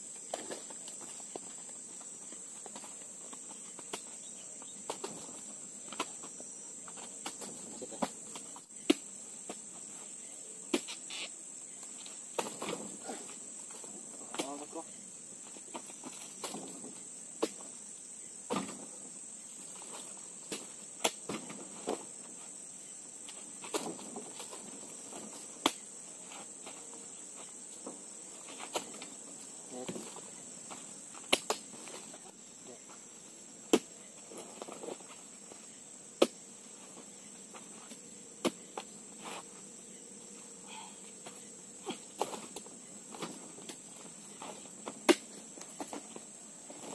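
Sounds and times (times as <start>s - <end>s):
high-pitched insect drone: 9.9s - 12.2s.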